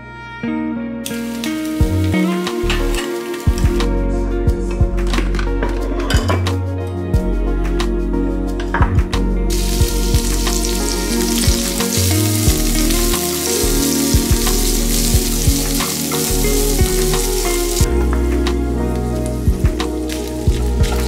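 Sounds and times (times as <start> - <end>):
meat sizzling in a frying pan: 1.1 - 3.8, 9.5 - 17.9, 18.9 - 21.0.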